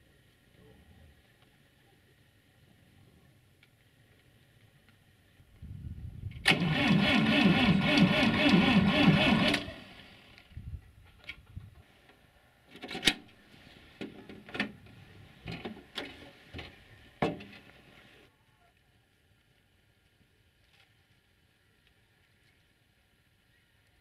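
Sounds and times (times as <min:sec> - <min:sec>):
tractor engine cranking: 0:06.4 - 0:10.3.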